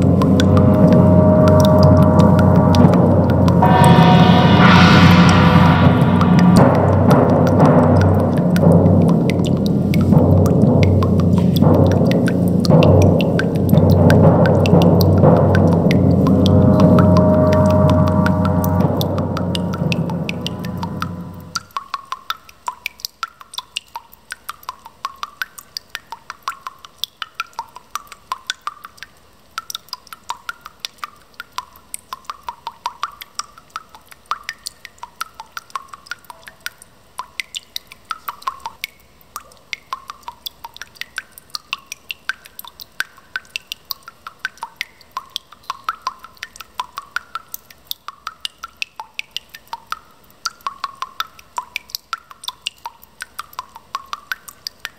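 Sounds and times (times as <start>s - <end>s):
dense irregular clicking: 0.0s - 21.8s
small pitched plinks: 0.0s - 22.5s.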